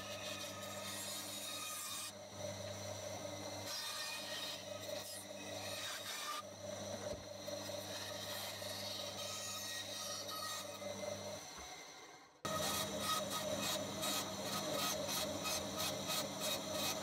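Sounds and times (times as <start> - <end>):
bandsaw motor hum: 0.0 - 17.0
saw blade rasping through wood: 12.5 - 17.0.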